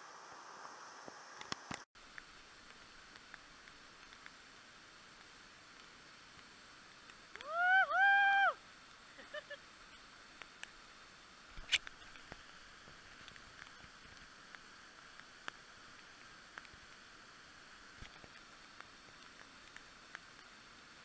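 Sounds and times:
person calling: 7.4 - 8.6.

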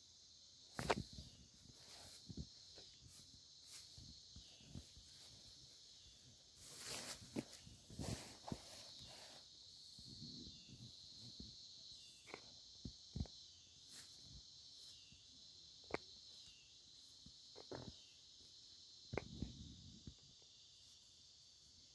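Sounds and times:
faint high-pitched hiss: 0.0 - 21.9.

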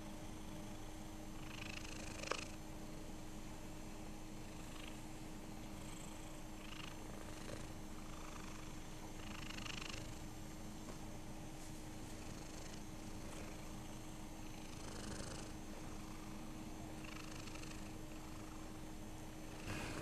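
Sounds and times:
cat purring: 1.4 - 2.6, 5.8 - 10.2, 12.0 - 18.8, 19.4 - 20.0.

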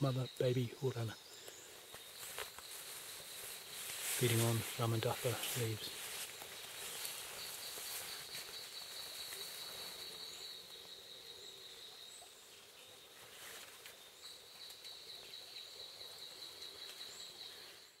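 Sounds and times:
high-pitched insect trill: 0.0 - 12.3
rain hiss: 1.3 - 8.5.

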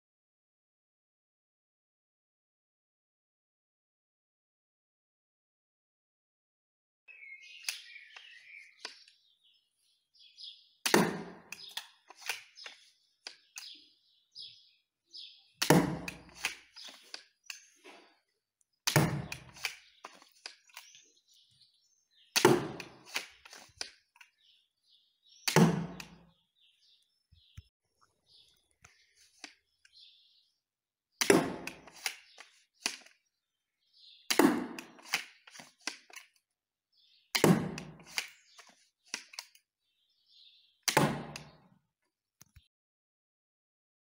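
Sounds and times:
birds chirping: 7.1 - 41.8
crossbow shot snapping: 10.8 - 13.7, 15.6 - 17.6, 18.9 - 20.8, 22.3 - 24.0, 25.4 - 26.3, 31.2 - 33.1, 34.3 - 36.2, 37.4 - 38.4, 40.9 - 41.6.

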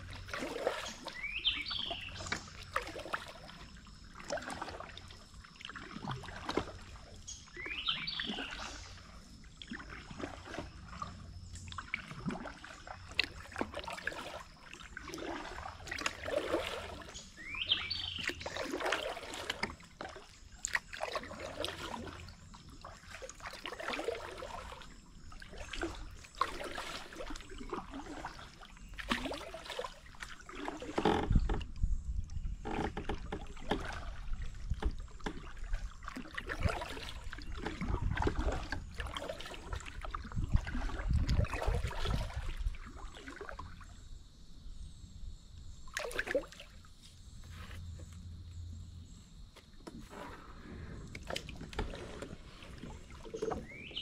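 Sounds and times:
water dripping off paddle: 0.0 - 31.6
kayak paddle splashing: 0.0 - 44.9, 45.6 - 54.0.

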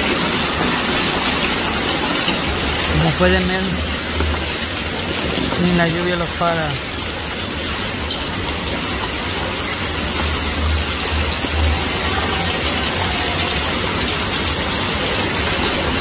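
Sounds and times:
heavy rain on pavement: 0.0 - 16.0.

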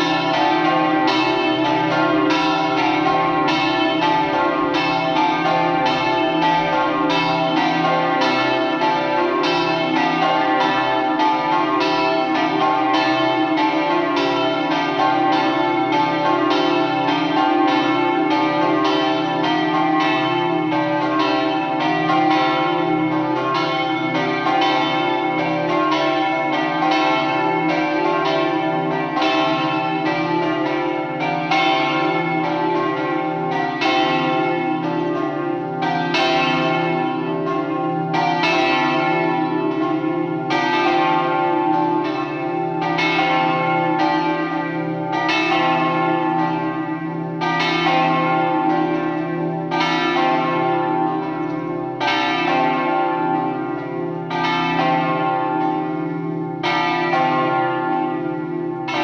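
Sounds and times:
church bells ringing: 0.0 - 59.0.

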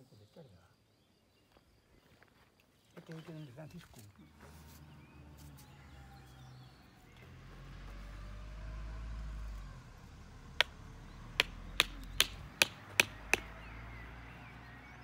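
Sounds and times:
hammer knocking wooden stake: 11.4 - 13.6.

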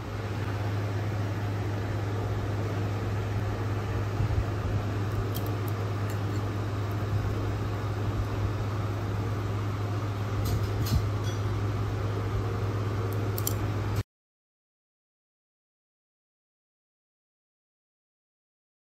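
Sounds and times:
low machine hum: 0.0 - 14.0
chopsticks clicking against bowl: 13.1 - 13.6.

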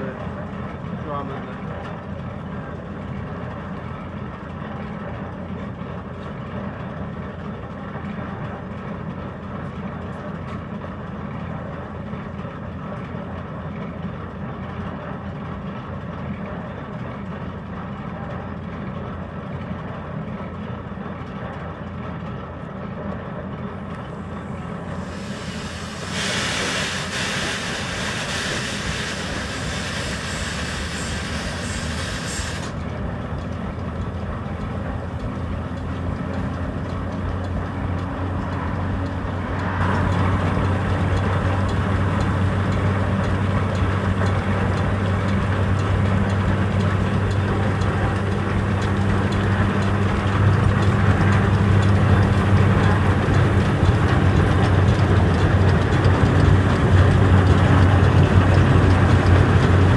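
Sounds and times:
machinery rumbling: 0.0 - 59.9
loud hiss: 24.9 - 32.8.

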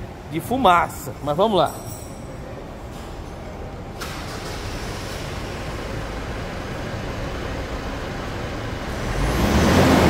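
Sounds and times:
diesel engine idling: 3.6 - 10.0.

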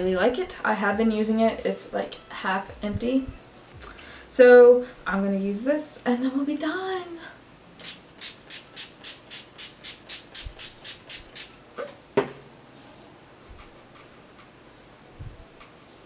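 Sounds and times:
spray bottle misting hisses: 7.8 - 11.5.

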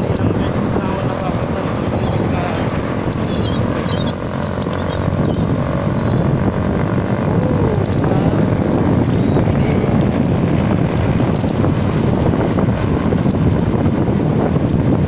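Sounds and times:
wind buffeting microphone: 0.0 - 15.0
faint clicks: 2.6 - 10.4, 11.2 - 13.7.

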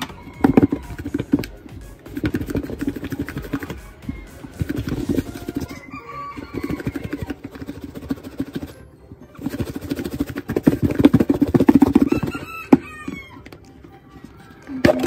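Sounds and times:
food shaken in plastic container: 0.5 - 3.8, 4.5 - 5.7, 6.5 - 8.8, 9.4 - 12.6.

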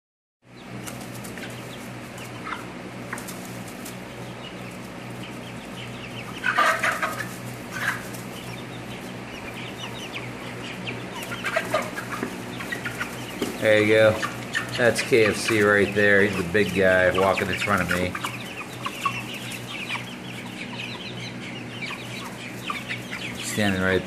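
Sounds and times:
chickens clucking and calling: 0.5 - 24.0
steady low hum: 0.5 - 24.0.

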